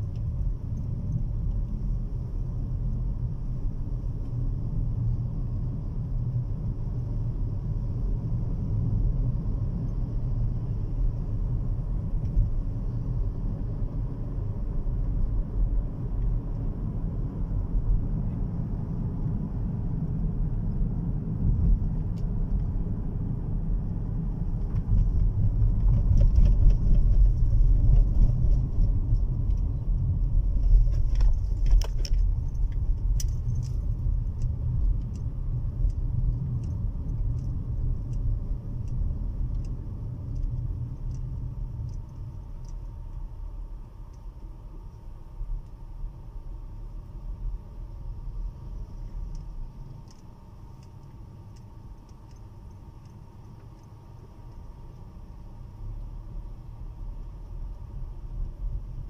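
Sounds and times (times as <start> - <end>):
car engine and tyre rumble: 0.0 - 59.0
light ticks: 30.9 - 43.3, 44.1 - 45.8, 49.0 - 55.1.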